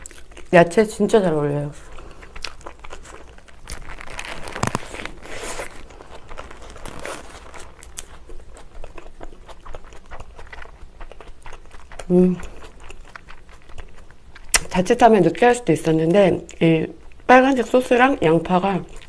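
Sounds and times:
wet chewing mouth clicks: 1.8s - 14.8s
paper wrapper crinkling: 2.7s - 8.1s.

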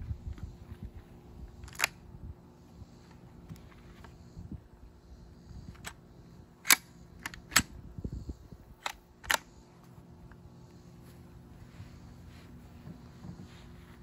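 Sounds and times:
rifle bolt metallic clicks: 1.6s - 2.0s, 6.6s - 7.7s, 8.8s - 9.5s.

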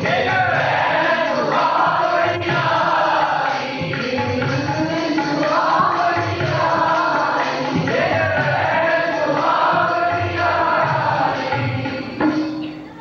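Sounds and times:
men singing: 0.0s - 12.4s
tabla beat: 0.0s - 13.0s.

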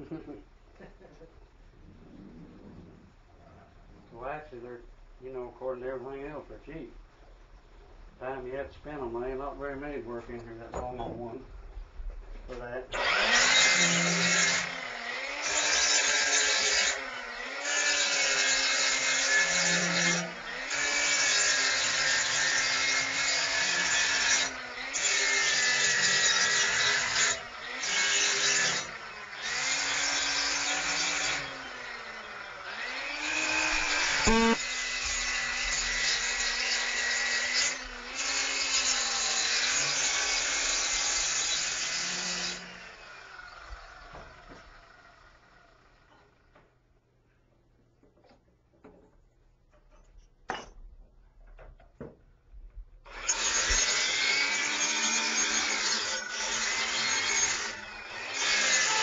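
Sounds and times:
electric grinder grinding steel: 13.0s - 45.9s, 53.1s - 59.0s.

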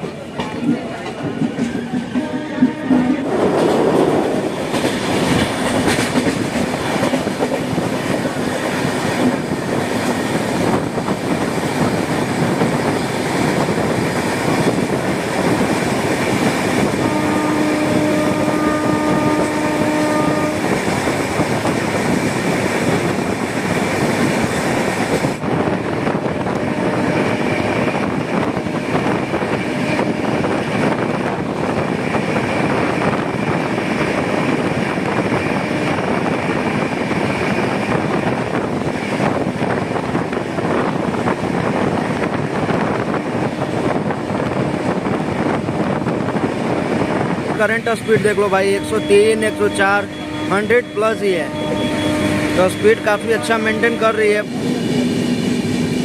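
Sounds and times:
train wheels rumbling on rails: 0.0s - 56.0s
train horn: 2.2s - 3.3s, 16.9s - 20.8s, 48.6s - 54.4s.

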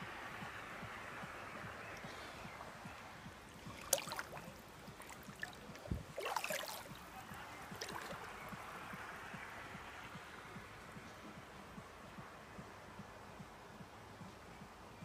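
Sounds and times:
stream babbling: 0.0s - 14.2s
water splashing: 1.8s - 9.8s.

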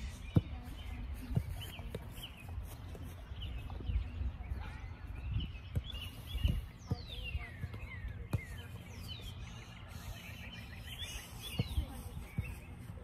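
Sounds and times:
soccer ball kicked on grass: 0.0s - 4.2s, 5.1s - 9.4s, 11.2s - 13.0s
wind rumble on microphone: 0.0s - 8.4s
songbirds chirping: 0.0s - 13.0s.

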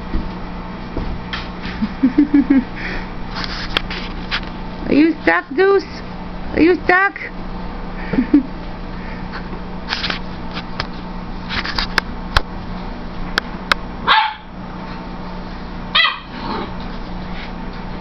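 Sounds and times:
puppy barking: 14.0s - 14.5s, 15.9s - 16.7s.

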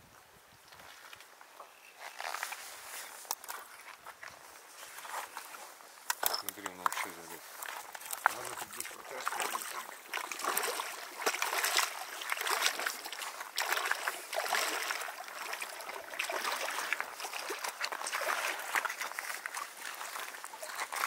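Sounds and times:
running stream: 0.0s - 21.0s
water splashing from wading: 7.1s - 21.0s.

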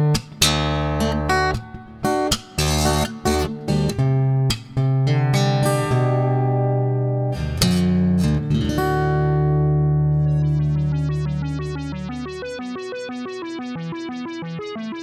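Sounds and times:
strummed guitar chords: 0.0s - 15.0s
fast repeated electronic notes: 10.2s - 15.0s.

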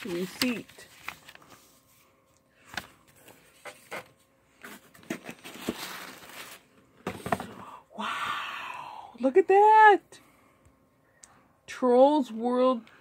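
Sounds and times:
paper and cardboard rustling: 0.0s - 7.5s.

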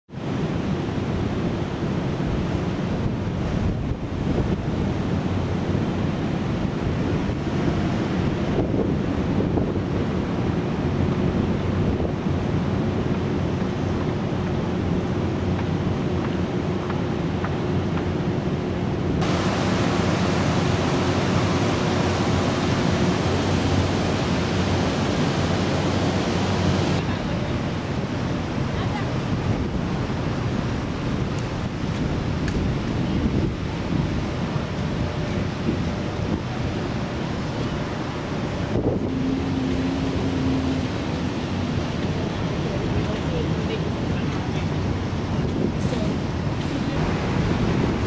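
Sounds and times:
city ambience: 0.1s - 48.0s
wind on microphone: 0.1s - 48.0s
low steady hum: 18.3s - 48.0s.

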